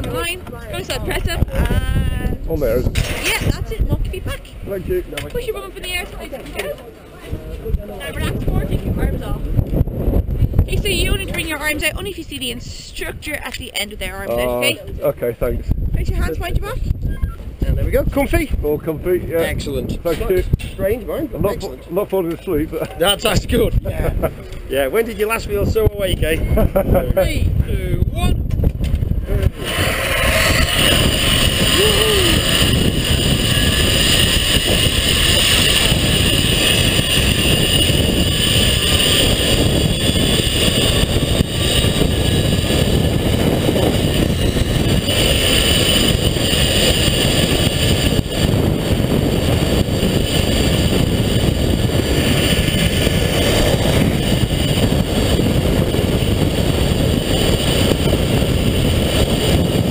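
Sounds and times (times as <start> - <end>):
wind rushing on microphone: 0.0 - 59.9
pulleys whirring on cable: 29.5 - 42.9.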